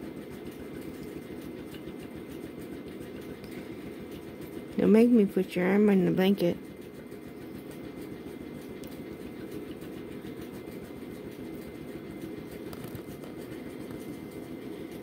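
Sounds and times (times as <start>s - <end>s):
breathing machine rumbling: 3.3s - 4.3s.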